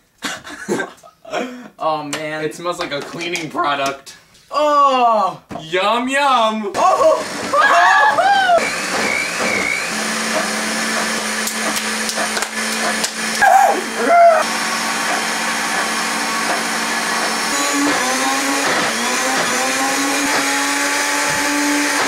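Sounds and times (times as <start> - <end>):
person shouting: 6.8 - 8.6, 13.4 - 14.5
blender motor running: 6.8 - 22.0.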